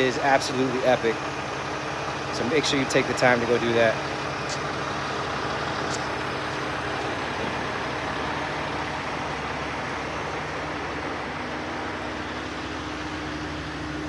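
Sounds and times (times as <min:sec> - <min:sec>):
truck diesel engine running: 0:00.0 - 0:14.0.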